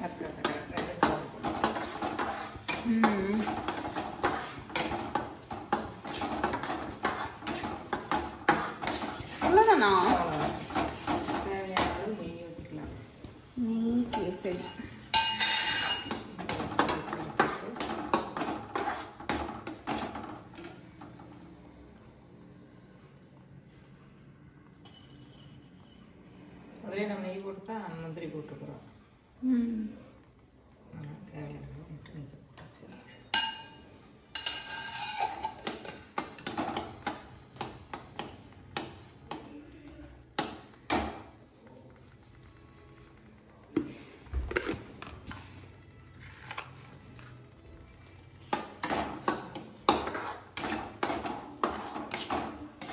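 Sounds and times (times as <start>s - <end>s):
spatula scraping metal pan: 0.3s - 12.1s, 15.4s - 20.4s, 34.4s - 36.5s, 49.9s - 52.9s
spoon clinking against steel pan: 14.2s - 16.3s, 33.2s - 36.0s.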